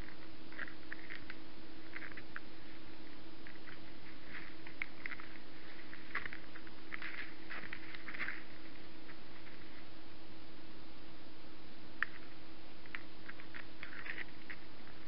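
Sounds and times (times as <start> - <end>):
deer rustling in dry grass and snow: 0.0 - 10.1
camera hum and hiss: 0.0 - 15.0.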